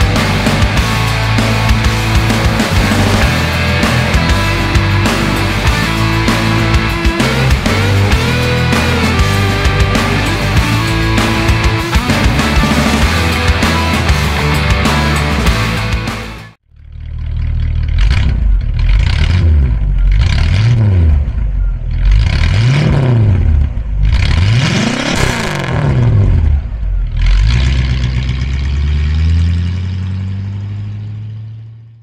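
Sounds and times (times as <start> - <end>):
car engine revving and idling: 0.0 - 32.0.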